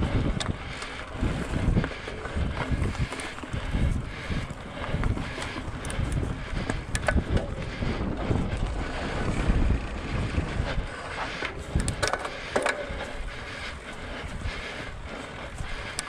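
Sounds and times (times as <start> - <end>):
wind buffeting microphone: 0.0 - 16.0
sharp clicks and rattles: 4.8 - 7.8, 11.4 - 12.9.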